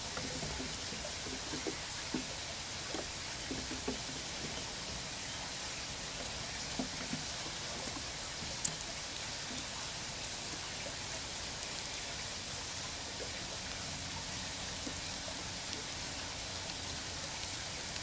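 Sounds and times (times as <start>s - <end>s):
steady background hiss: 0.0s - 18.0s
squirrel cracking seed shells: 6.5s - 18.0s.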